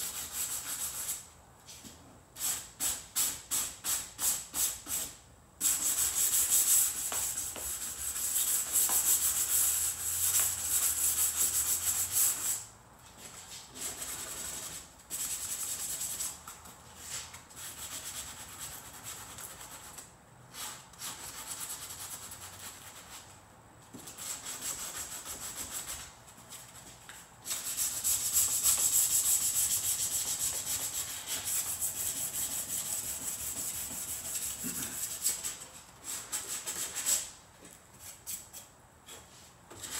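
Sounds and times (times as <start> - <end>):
sandpaper rubbing back and forth: 5.7 - 12.6, 27.5 - 35.6.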